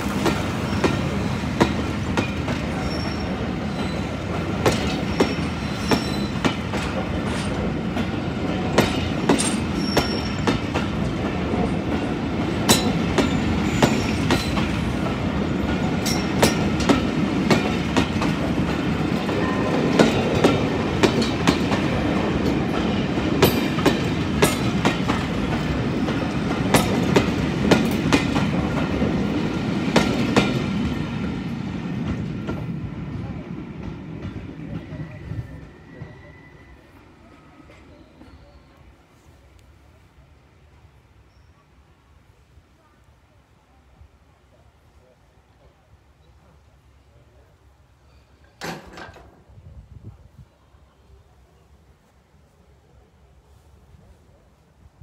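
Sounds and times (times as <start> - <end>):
train coaches rumbling past: 0.0 - 55.0
wheels clicking over rail joints: 48.4 - 49.5.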